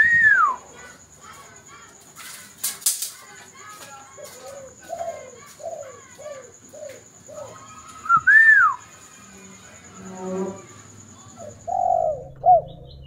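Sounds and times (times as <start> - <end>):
dove cooing: 4.1 - 8.7, 11.2 - 13.0
rising and falling whistle: 8.0 - 8.8.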